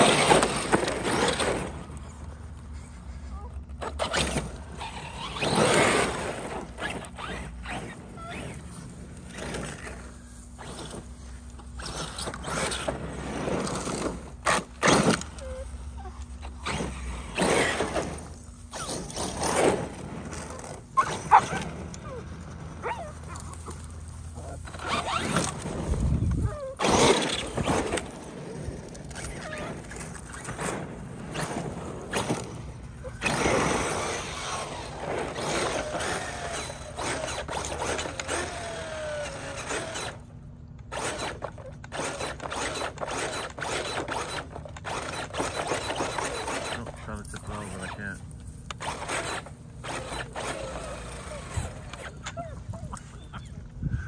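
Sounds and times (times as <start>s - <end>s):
electric motor whirring: 31.3s - 52.4s.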